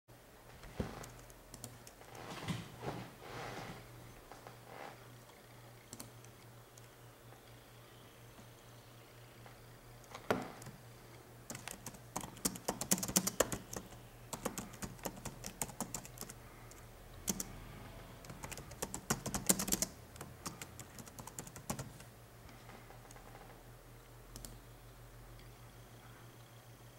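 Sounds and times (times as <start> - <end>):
typing on computer keyboard: 1.0 - 2.0, 5.9 - 6.9, 11.5 - 17.5, 18.2 - 22.1.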